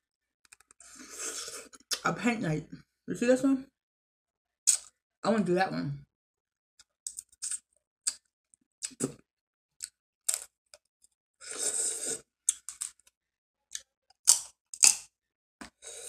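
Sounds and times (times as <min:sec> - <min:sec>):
sucking slurp: 0:00.8 - 0:01.9, 0:11.4 - 0:12.6
crab shells cracking: 0:12.5 - 0:13.0, 0:14.3 - 0:15.1.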